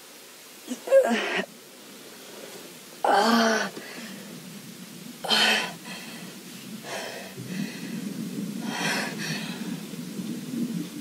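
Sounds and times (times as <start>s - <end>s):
low steady rumble: 2.0s - 11.0s
person gasping breaths: 5.2s - 8.0s, 8.6s - 9.9s.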